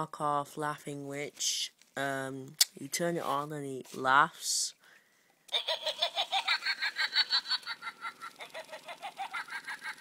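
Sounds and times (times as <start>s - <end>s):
toy playing cackling laugh: 5.5s - 10.0s.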